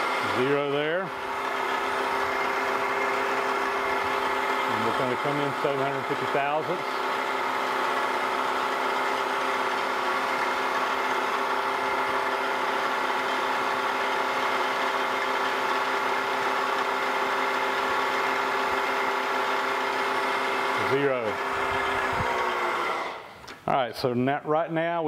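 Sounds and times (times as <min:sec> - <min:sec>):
milling machine humming: 0:00.0 - 0:23.6.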